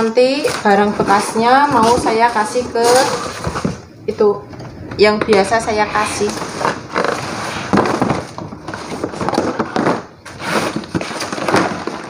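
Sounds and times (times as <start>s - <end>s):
cardboard scraping and rustling: 5.3s - 12.0s.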